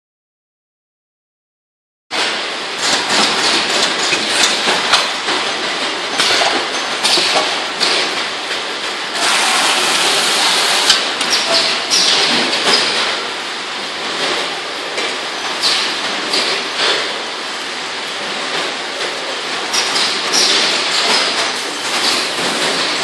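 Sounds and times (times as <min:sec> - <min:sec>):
hiss: 0:09.2 - 0:11.0.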